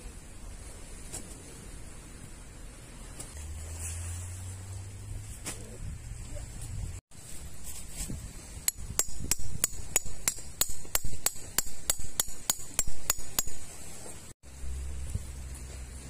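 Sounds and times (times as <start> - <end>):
metal hammer striking tent peg: 8.7 - 13.6.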